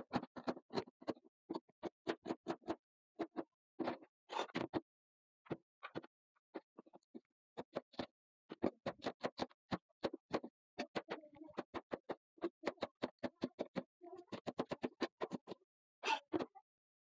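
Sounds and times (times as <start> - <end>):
knife chopping on plastic board: 8.6 - 11.0.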